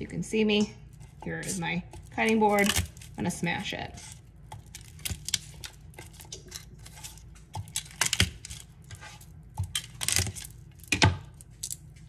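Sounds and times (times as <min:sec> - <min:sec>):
knife smashing garlic on board: 0:01.4 - 0:03.1.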